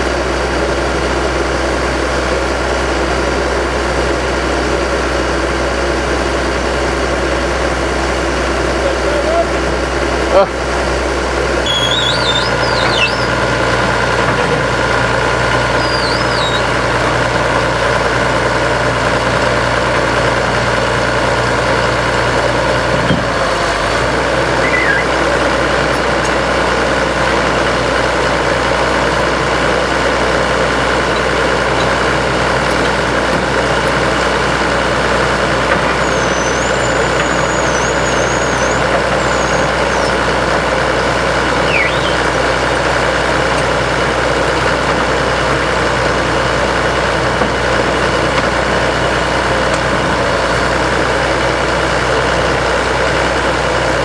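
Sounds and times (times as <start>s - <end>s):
engine droning: 0.0s - 54.0s
high wavering chirps: 11.6s - 13.4s, 15.8s - 16.8s, 24.6s - 25.2s, 41.6s - 42.3s.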